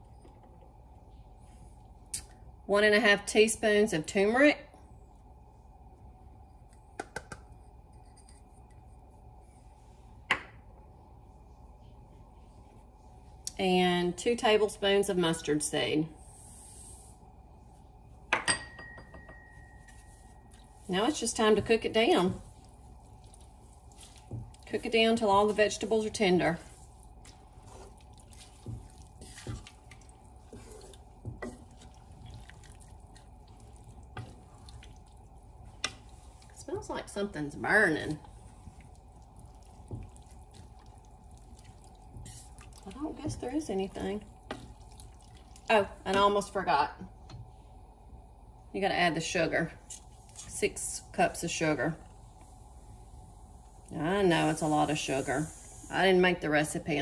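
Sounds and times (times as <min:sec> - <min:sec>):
low steady hum: 0:00.0 - 0:57.0
wet sloshing in a pot: 0:19.9 - 0:47.8.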